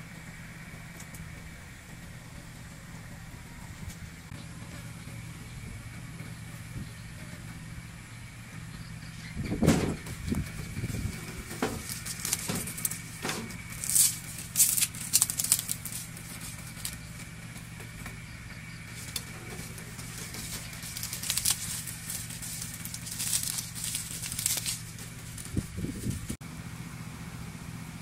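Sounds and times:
steady low hum: 0:00.0 - 0:28.0
straw and kindling crackling: 0:09.5 - 0:26.4.

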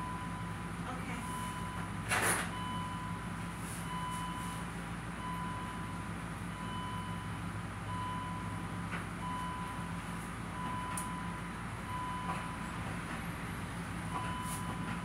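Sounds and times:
electronic warning chime beeping: 0:01.2 - 0:01.8, 0:02.5 - 0:03.2.

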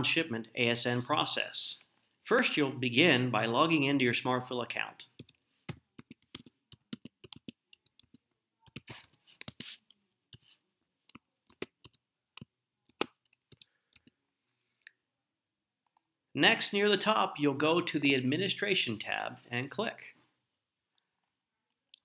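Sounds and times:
typing on computer keyboard: 0:05.2 - 0:09.7, 0:11.1 - 0:14.2.

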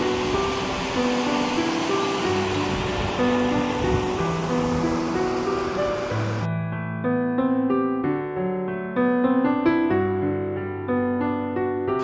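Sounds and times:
rushing water: 0:00.0 - 0:06.5
melody of long held notes: 0:00.0 - 0:06.6.

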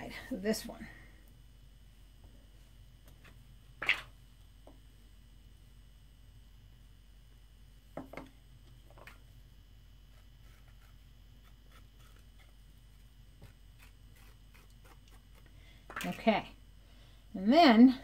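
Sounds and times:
pottery tools on soft clay: 0:10.0 - 0:16.5.

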